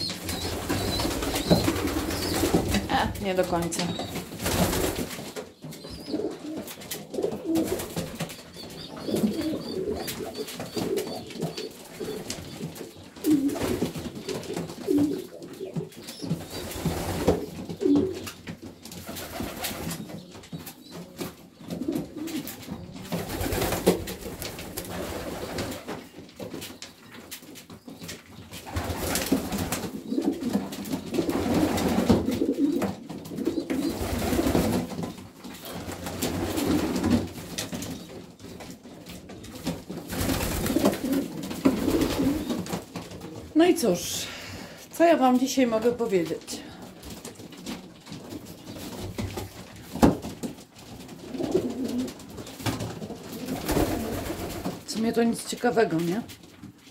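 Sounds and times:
pigeons cooing: 0.0s - 3.1s, 3.9s - 18.4s, 28.7s - 34.7s, 40.2s - 42.7s, 51.2s - 52.2s.

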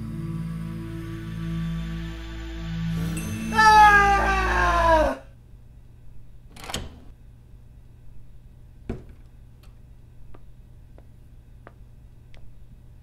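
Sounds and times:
steady low hum: 5.2s - 13.0s
light footsteps: 10.2s - 12.6s.

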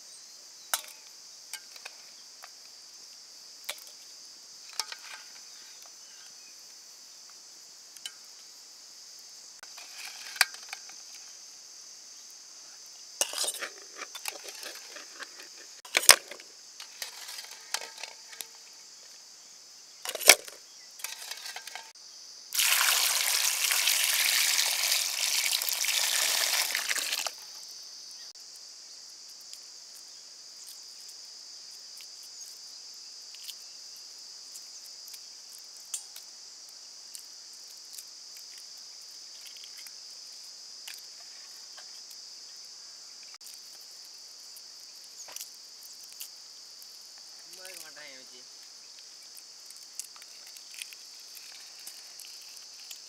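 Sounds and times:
crickets chirring: 0.0s - 53.0s
pouring water rushing: 22.5s - 27.4s
eggshells cracking: 22.6s - 27.4s.

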